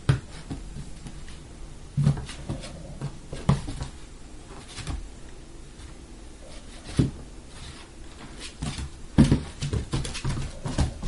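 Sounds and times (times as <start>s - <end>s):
ball thuds on hardwood floor: 8.6s - 11.0s.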